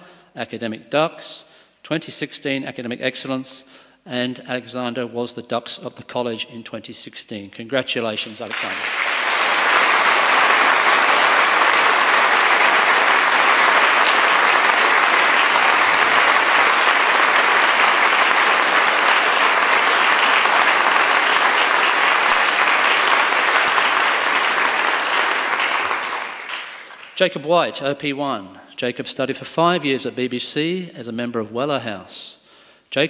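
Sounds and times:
audience applauding: 8.4s - 27.2s.

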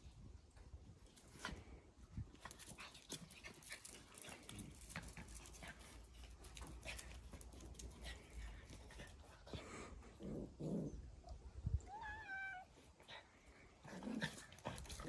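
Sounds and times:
puppies scuffling and clicking: 2.3s - 9.6s.

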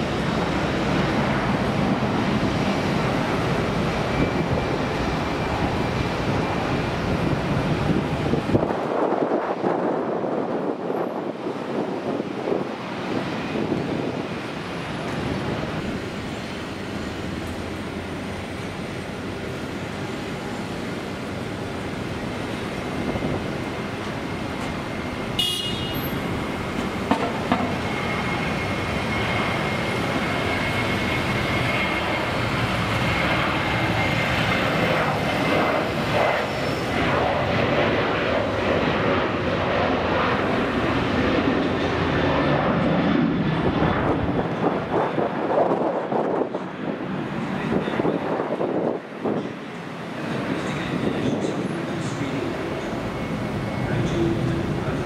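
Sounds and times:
jet engines spooling up: 26.1s - 55.0s.

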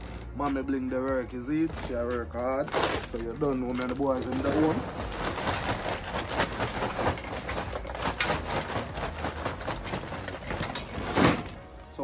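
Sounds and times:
charcoal rattling into a pan: 1.4s - 12.0s.

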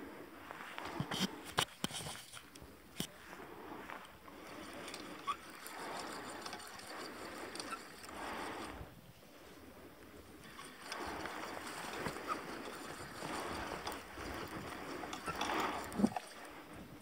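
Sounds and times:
water splashing from rowing: 4.2s - 8.9s, 10.3s - 17.0s.

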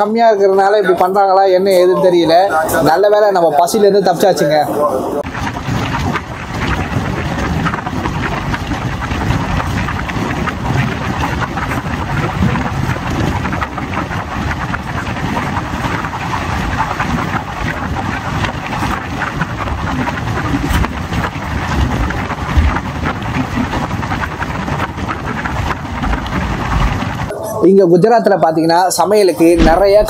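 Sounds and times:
wind on microphone: 5.2s - 27.3s
sharp knocks: 29.6s - 30.0s.

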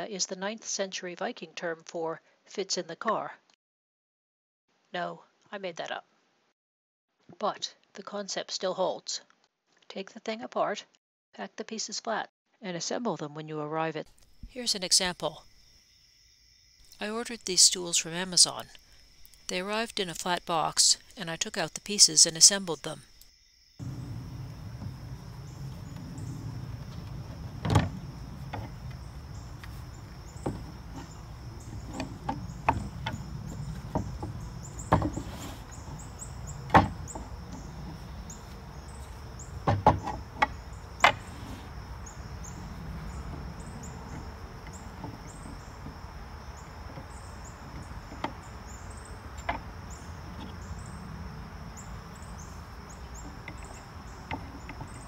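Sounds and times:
wooden parts knocking: 23.8s - 50.6s, 52.3s - 55.0s.

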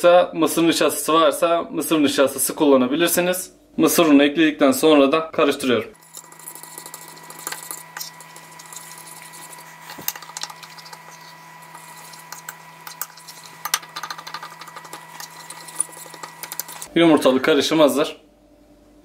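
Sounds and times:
faint steady hum: 5.9s - 19.0s
fork whisking batter on plate: 6.0s - 16.9s.

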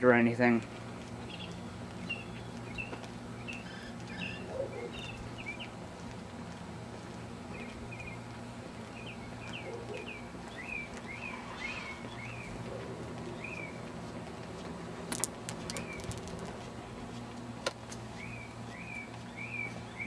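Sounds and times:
outdoor background hum: 0.0s - 20.0s
small birds chirping: 0.4s - 14.5s, 15.5s - 16.4s, 18.1s - 20.0s
sharp clicks: 15.1s - 16.5s.

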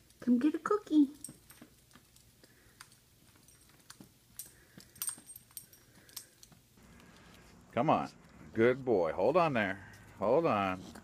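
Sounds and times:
dog footsteps clicking on carpet: 1.1s - 9.0s.

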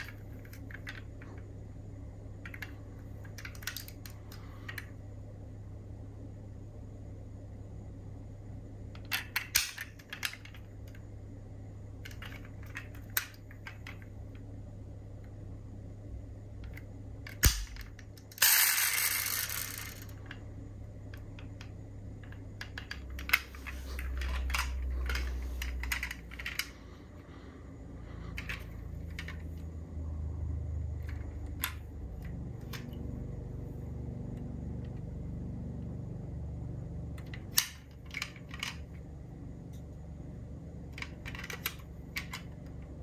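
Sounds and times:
metal model cars clicking: 2.4s - 4.9s, 9.0s - 11.0s, 16.6s - 20.4s, 21.2s - 26.8s, 37.2s - 39.0s, 40.9s - 42.9s.

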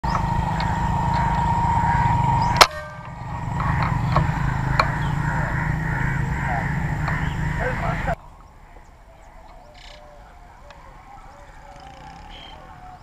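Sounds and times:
low background rumble: 0.0s - 9.3s.

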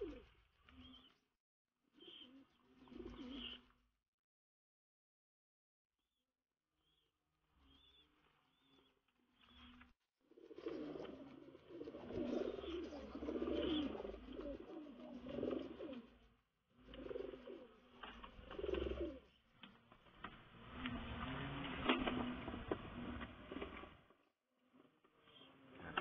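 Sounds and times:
pigeons cooing: 0.0s - 1.1s, 2.0s - 3.7s, 10.3s - 19.4s.

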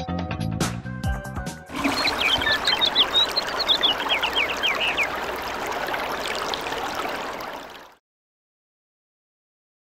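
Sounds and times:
toilet flushing: 1.7s - 3.9s.

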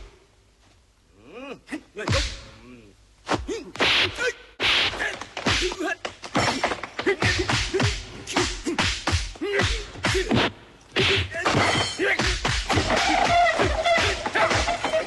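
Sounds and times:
fighters grunting and shouting: 1.2s - 15.0s
punch and kick impacts: 3.3s - 15.0s.

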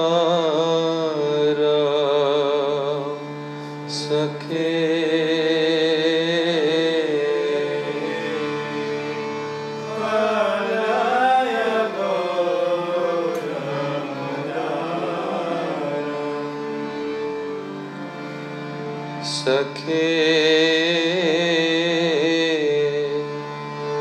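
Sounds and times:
person singing: 0.0s - 18.5s
harmonium sustained notes: 0.0s - 24.0s.

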